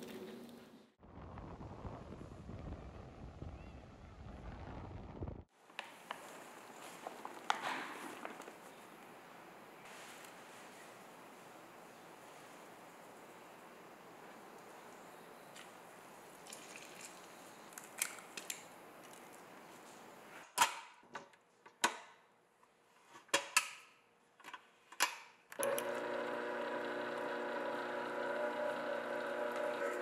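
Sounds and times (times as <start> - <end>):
stand mixer motor whining: 25.6 - 30.0.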